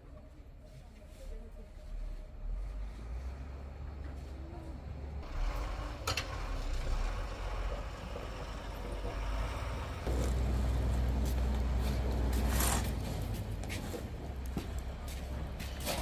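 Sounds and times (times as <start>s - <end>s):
truck engine running: 5.2s - 16.0s
snow shovel scraping ground: 10.0s - 14.0s.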